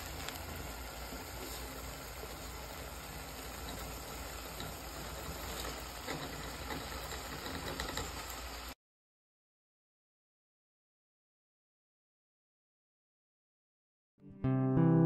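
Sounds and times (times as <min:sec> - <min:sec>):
pot sizzling and hissing: 0:00.0 - 0:08.8.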